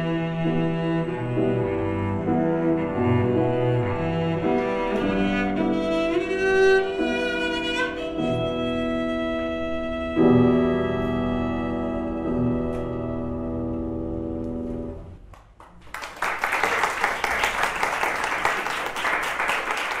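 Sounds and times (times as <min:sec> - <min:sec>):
cello and piano: 0:00.0 - 0:15.2
applause: 0:15.4 - 0:20.0.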